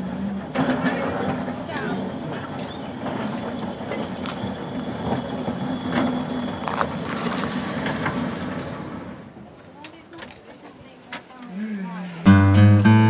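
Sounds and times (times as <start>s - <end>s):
wheels clicking over rail joints: 0.0s - 11.6s
electric tram humming: 0.0s - 13.0s.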